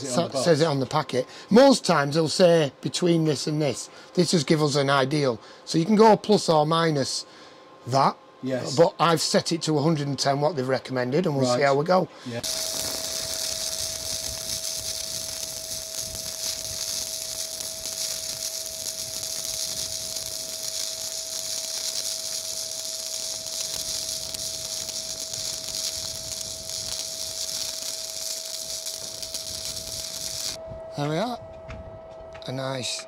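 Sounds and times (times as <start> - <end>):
steady whine: 0.0 - 33.0
welding arc crackling hiss: 12.4 - 30.6.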